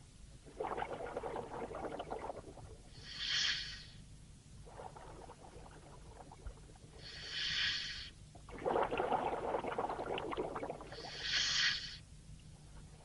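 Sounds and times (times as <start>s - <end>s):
bubbling exhalation: 0.5s - 2.8s, 8.5s - 11.2s
regulator inhalation hiss: 2.9s - 4.0s, 7.0s - 8.2s, 10.9s - 12.0s.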